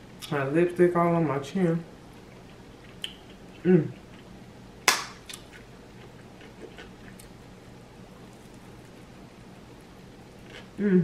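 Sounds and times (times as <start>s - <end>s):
soft chewing clicks: 2.2s - 4.3s, 5.3s - 7.5s.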